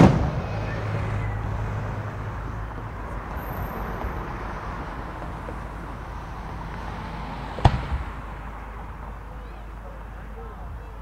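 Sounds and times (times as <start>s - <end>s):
firework shell bang: 0.0s - 0.6s, 7.6s - 8.1s
outdoor background noise: 0.0s - 11.0s.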